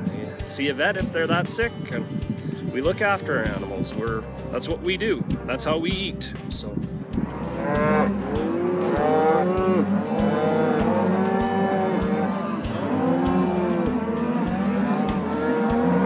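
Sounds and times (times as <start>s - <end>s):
cows mooing: 7.1s - 16.0s.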